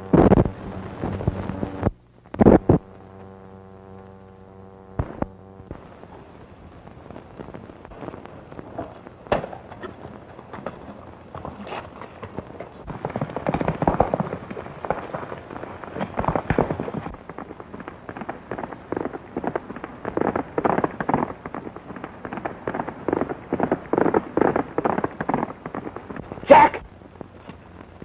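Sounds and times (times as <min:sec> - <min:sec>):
galloping horse hoofbeats: 0:08.7 - 0:26.8.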